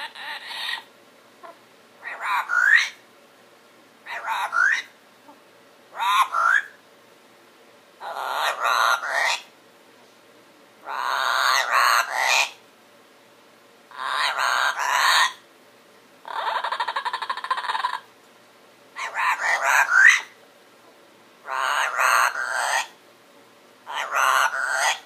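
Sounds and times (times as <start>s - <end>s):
parrot mumbling chatter: 0.0s - 3.0s, 4.1s - 5.4s, 6.0s - 6.7s, 8.0s - 9.5s, 10.8s - 12.6s, 13.9s - 15.4s, 16.2s - 18.1s, 19.0s - 20.3s, 21.4s - 22.9s, 23.9s - 25.0s.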